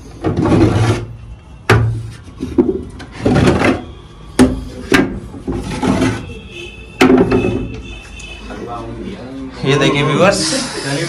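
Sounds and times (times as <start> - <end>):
wood scraping on wood: 5.4 - 6.4
sharp wooden knocks: 7.0 - 7.8.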